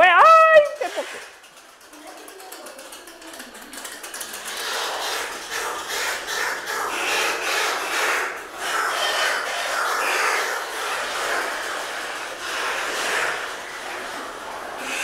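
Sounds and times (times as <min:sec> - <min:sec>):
birds screeching with echo: 0:06.2 - 0:11.0.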